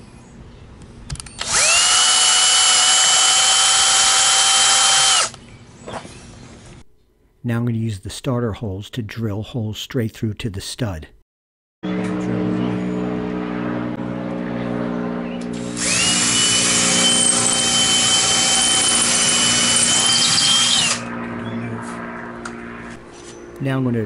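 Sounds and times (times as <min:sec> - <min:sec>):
cordless drill drilling: 0:01.4 - 0:05.4, 0:15.5 - 0:21.1.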